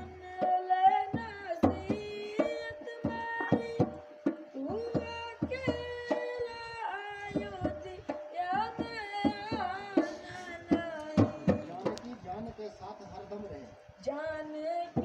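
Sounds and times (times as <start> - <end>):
hand drum strikes: 7.3 - 12.2.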